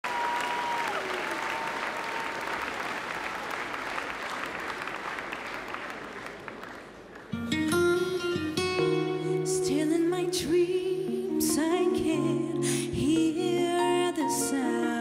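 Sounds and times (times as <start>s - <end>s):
audience applauding: 0.0s - 7.6s
plucked guitar notes: 7.4s - 15.0s.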